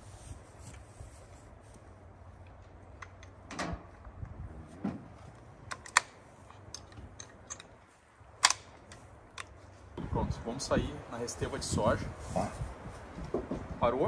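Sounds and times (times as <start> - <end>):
light clicks and knocks of gear: 2.4 - 4.4, 5.2 - 9.8
sharp clicks: 8.4 - 9.6.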